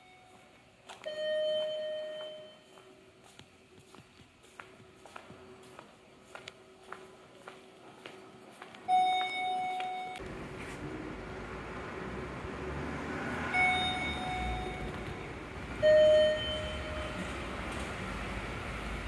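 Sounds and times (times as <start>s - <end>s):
electronic chime tones: 8.9s - 10.2s, 13.6s - 15.1s, 15.8s - 17.3s.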